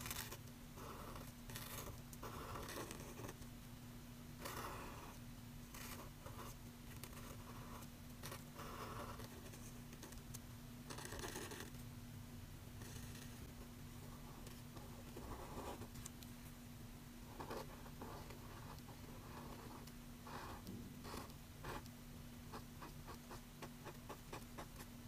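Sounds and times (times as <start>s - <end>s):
marker scratching on paper: 0.0s - 3.4s, 4.4s - 10.2s, 10.9s - 11.7s, 12.8s - 13.5s.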